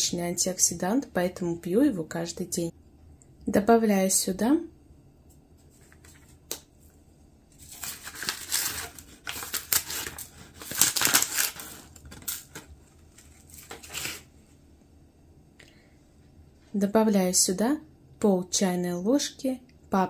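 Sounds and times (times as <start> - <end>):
foil packet crinkling: 7.6 - 14.3.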